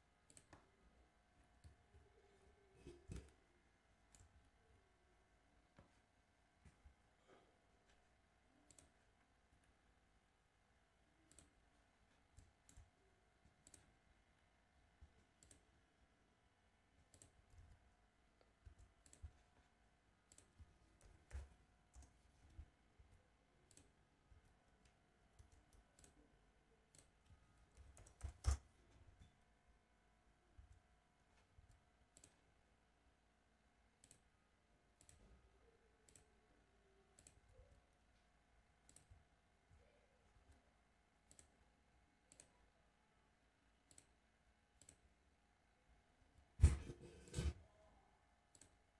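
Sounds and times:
faint steady hum: 0:00.0 - 0:48.9
computer mouse clicks: 0:00.2 - 0:00.7, 0:02.8 - 0:03.4, 0:08.6 - 0:09.1, 0:11.2 - 0:11.6, 0:12.4 - 0:14.0, 0:15.0 - 0:15.7, 0:17.0 - 0:17.8, 0:18.4 - 0:19.5, 0:20.3 - 0:22.7, 0:23.6 - 0:24.0, 0:24.8 - 0:26.2, 0:26.8 - 0:29.2, 0:31.7 - 0:32.4, 0:34.0 - 0:34.3, 0:35.0 - 0:35.3, 0:36.0 - 0:36.4, 0:37.1 - 0:37.7, 0:38.8 - 0:39.9, 0:41.2 - 0:41.6, 0:42.3 - 0:42.6, 0:43.8 - 0:44.2, 0:44.8 - 0:45.0, 0:46.6 - 0:47.6, 0:48.5 - 0:48.8.

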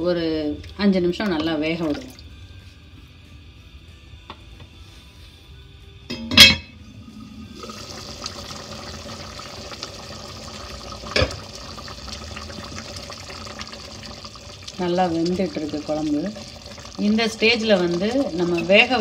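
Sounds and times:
lid clanking onto pot: 0:06.1 - 0:06.7
gravy simmering and bubbling: 0:06.9 - 0:19.0.

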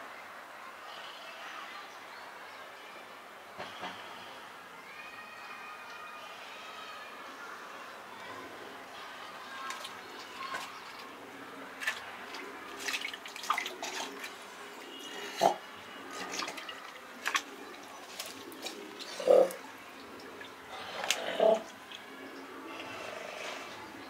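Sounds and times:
water plops: 0:09.6 - 0:11.1, 0:11.8 - 0:22.1.

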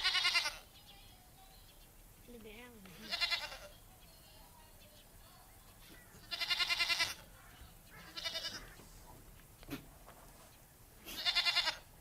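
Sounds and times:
goats bleating: 0:00.0 - 0:00.7, 0:02.9 - 0:03.7, 0:06.2 - 0:07.3, 0:08.0 - 0:08.8, 0:11.1 - 0:11.9.

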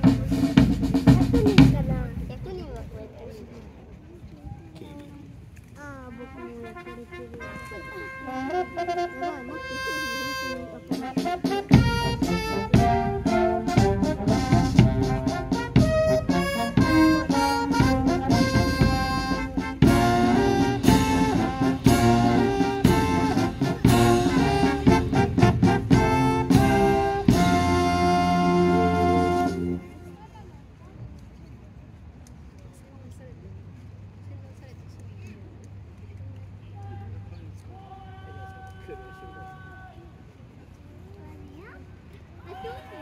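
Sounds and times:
brass band playing: 0:00.0 - 0:02.2, 0:06.1 - 0:30.2.

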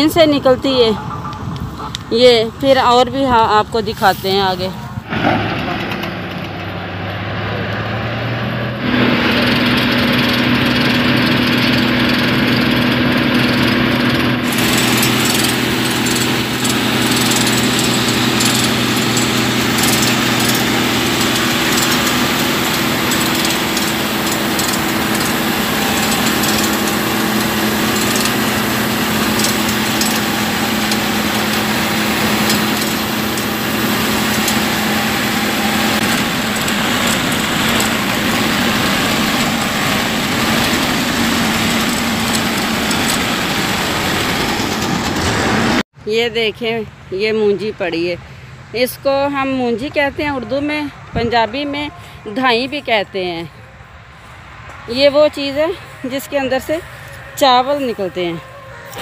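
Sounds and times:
combine harvester machine drone: 0:00.0 - 0:45.8
grain pouring hiss: 0:14.4 - 0:44.6.

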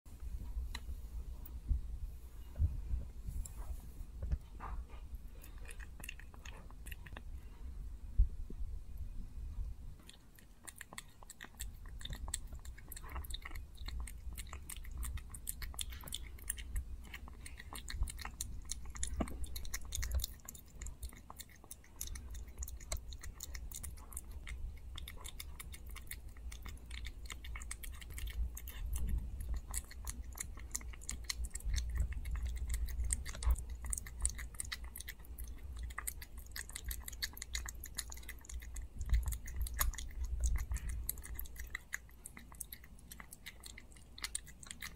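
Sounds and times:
low rumble: 0:00.1 - 0:10.2
puppy licking and chewing food: 0:00.1 - 0:44.9.

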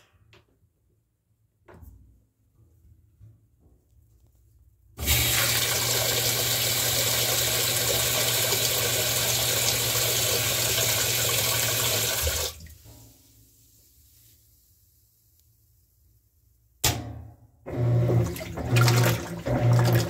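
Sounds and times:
washing machine filling with water: 0:05.0 - 0:12.8, 0:17.7 - 0:20.0.

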